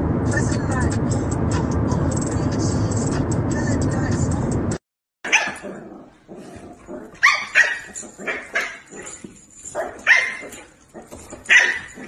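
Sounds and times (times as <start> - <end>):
dog barking: 5.3 - 5.8, 7.2 - 12.0.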